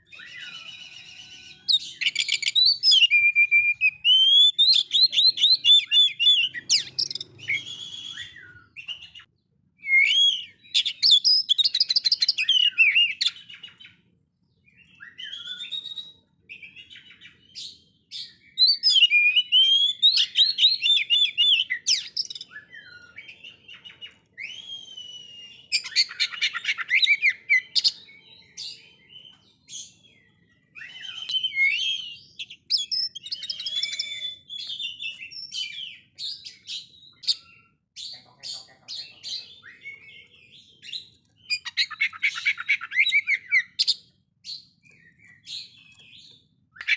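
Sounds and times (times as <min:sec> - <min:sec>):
songbird whistling and trilling: 0:00.0 - 0:46.9.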